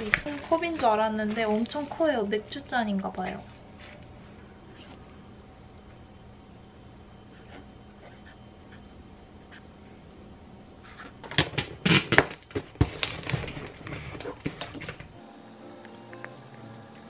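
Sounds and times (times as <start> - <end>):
paper and books rustling: 0.0 - 2.2, 12.5 - 15.2.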